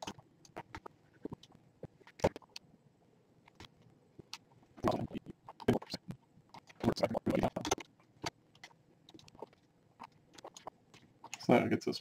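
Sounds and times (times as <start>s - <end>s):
mouse and keyboard clicks: 5.4s - 11.5s.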